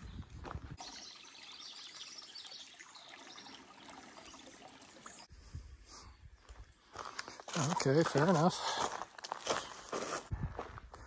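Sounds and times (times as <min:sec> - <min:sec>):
footsteps on dirt trail: 0:00.0 - 0:00.8, 0:06.4 - 0:11.0
creek trickling over rocks: 0:00.4 - 0:05.3, 0:07.0 - 0:09.6.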